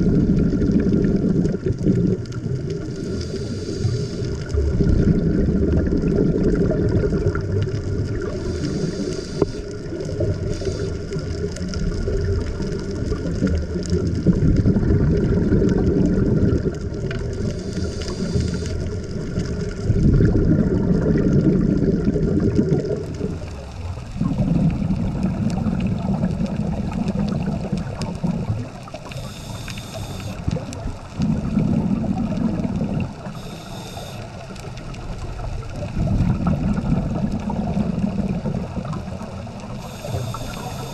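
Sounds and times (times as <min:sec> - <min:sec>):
exhaled bubbles rumbling: 0:00.0 - 0:40.9
faint steady hum: 0:00.0 - 0:40.9
regulator inhalation hiss: 0:02.9 - 0:04.5, 0:08.3 - 0:09.8, 0:10.4 - 0:11.2, 0:17.5 - 0:18.9, 0:29.1 - 0:30.4, 0:33.3 - 0:34.3, 0:39.8 - 0:40.9.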